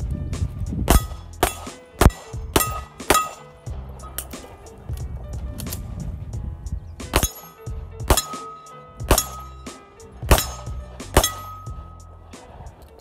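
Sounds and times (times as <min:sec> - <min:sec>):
background music: 0:00.0 - 0:13.0
pistol shots: 0:00.9 - 0:03.6, 0:07.1 - 0:09.6, 0:10.2 - 0:11.9.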